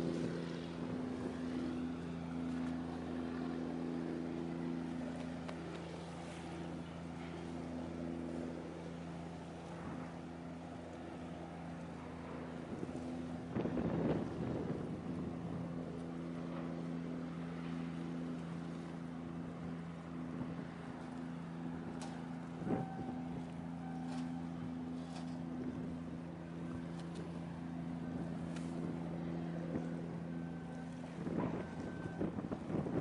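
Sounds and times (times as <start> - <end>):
ship engine drone: 0.0 - 33.0
wind buffeting microphone: 12.0 - 18.6, 19.3 - 33.0.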